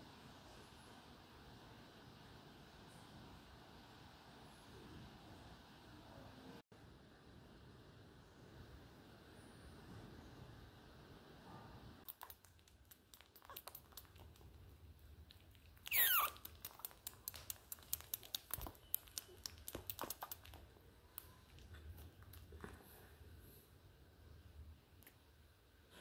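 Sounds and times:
otter mouth clicks and smacks: 12.0 - 22.8
high squeak sliding down: 15.9 - 16.4.

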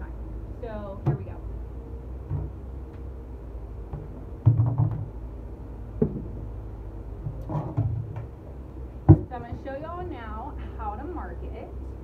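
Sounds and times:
knocks on empty plastic barrel: 3.9 - 5.1, 6.0 - 6.3.

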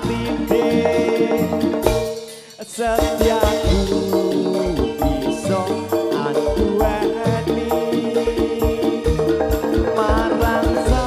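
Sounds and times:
drum strokes: 0.0 - 11.0
live band music: 0.0 - 11.0
held chords: 2.9 - 11.0.

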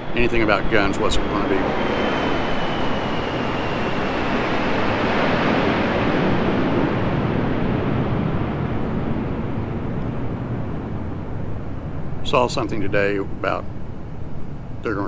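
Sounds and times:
aircraft passing overhead: 0.0 - 15.0.

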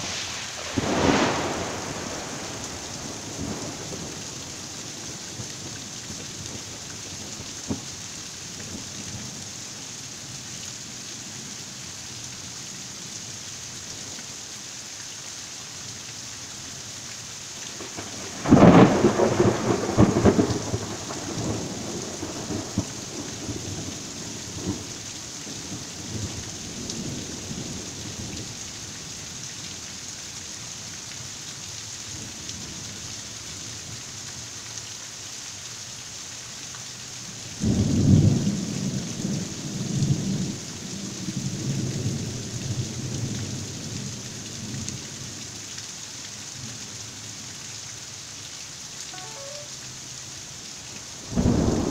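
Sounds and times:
loud thunderclap rumbling: 0.0 - 4.3, 18.0 - 23.8, 51.3 - 51.9
heavy rain falling: 0.0 - 51.9.

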